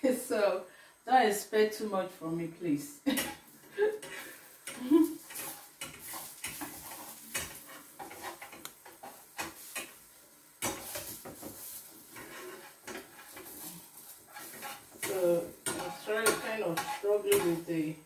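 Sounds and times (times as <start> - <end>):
utensils scraping a frying pan: 3.1 - 18.0
pancake sizzling in oil: 3.2 - 18.0.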